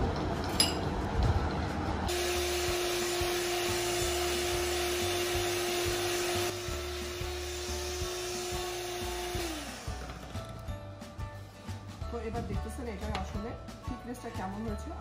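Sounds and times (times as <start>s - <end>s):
electric hand mixer whining: 2.1s - 10.7s.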